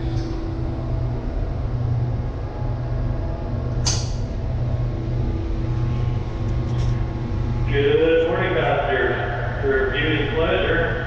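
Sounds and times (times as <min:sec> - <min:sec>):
ship engines droning: 0:00.0 - 0:11.0
sharp click: 0:03.8 - 0:04.2.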